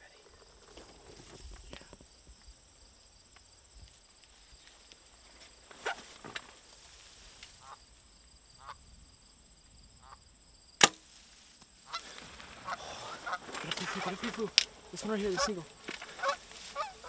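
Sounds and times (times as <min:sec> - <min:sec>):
geese calling: 0:07.2 - 0:07.9, 0:08.6 - 0:08.8, 0:10.0 - 0:10.2, 0:11.8 - 0:17.0
geese honking: 0:07.6 - 0:07.9, 0:08.6 - 0:08.8, 0:10.0 - 0:10.2, 0:11.8 - 0:17.0
bow snapping: 0:10.8 - 0:14.8.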